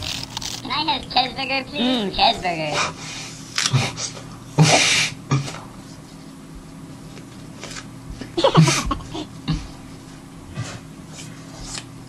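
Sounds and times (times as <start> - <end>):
person eating an apple: 0.0 - 0.7.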